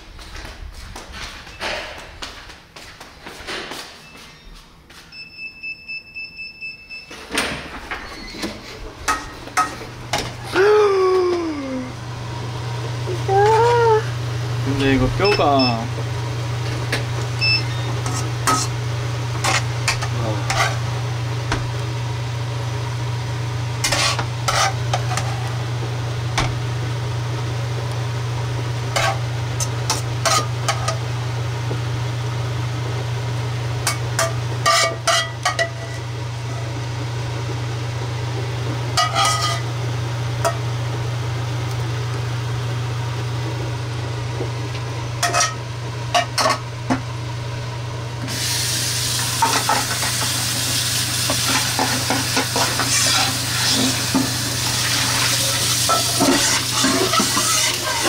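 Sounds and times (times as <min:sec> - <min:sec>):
metal ladle scraping a wok: 0:18.0 - 0:18.7, 0:23.8 - 0:25.3, 0:34.2 - 0:36.0, 0:39.0 - 0:39.7, 0:52.6 - 0:54.0, 0:55.0 - 0:58.0.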